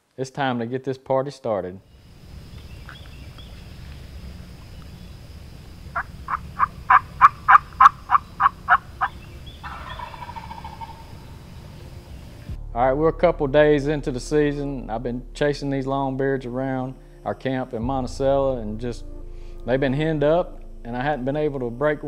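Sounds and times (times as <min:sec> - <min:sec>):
low turkey call: 0:01.9 - 0:12.5
wild turkey yelping: 0:02.3 - 0:12.4.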